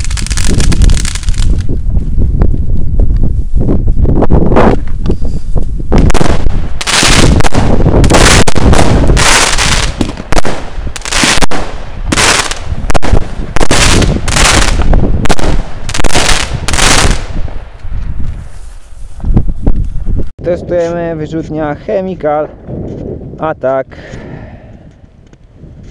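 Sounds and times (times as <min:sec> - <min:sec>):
fireworks sharp bangs: 0:05.9 - 0:17.9.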